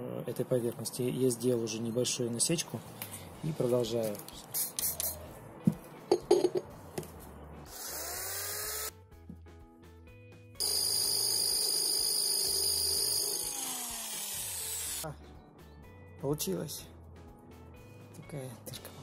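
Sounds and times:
cordless drill boring ceramic: 7.7 - 8.9, 10.6 - 15.0.

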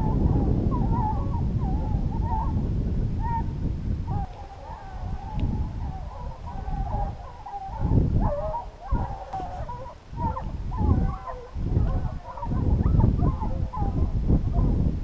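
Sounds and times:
hounds baying: 0.0 - 2.6, 4.1 - 14.7
wind buffeting microphone: 0.0 - 15.0.

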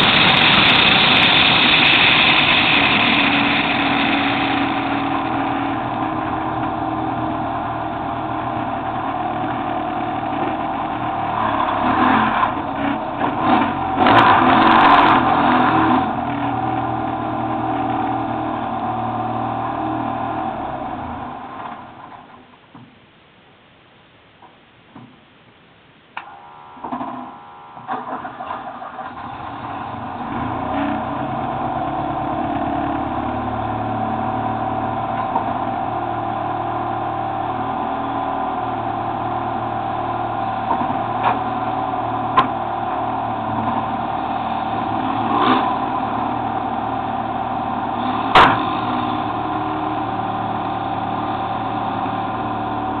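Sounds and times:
car engine idling: 0.0 - 19.7.

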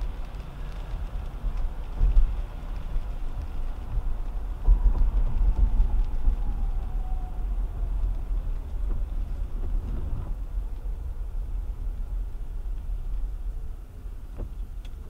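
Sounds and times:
road rumble inside car: 0.0 - 15.0
windshield wiper sweeping: 8.3 - 12.0, 13.1 - 15.0.

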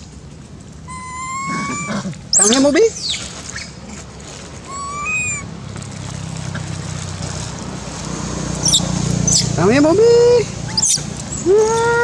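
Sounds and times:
macaque whistle-like call: 0.9 - 3.7, 4.7 - 5.5, 10.7 - 11.0.

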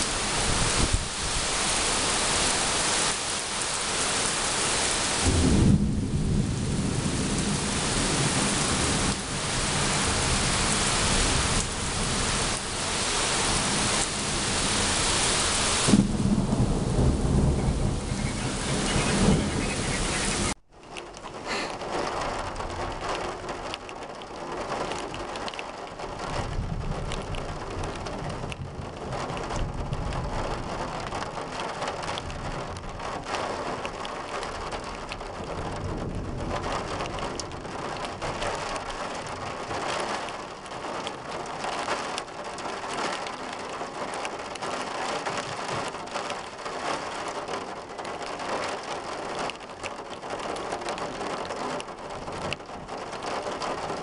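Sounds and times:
thunder rumbling: 0.0 - 20.6, 26.1 - 41.3
heavy rain on pavement: 0.0 - 54.0.

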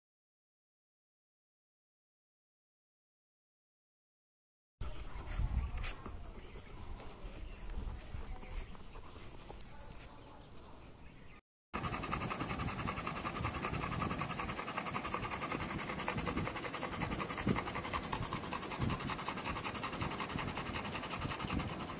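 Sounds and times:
dog panting rapidly: 11.8 - 21.9.

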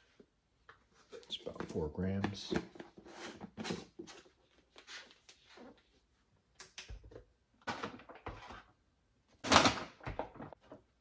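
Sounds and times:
containers knocking and clicking: 0.6 - 3.5.

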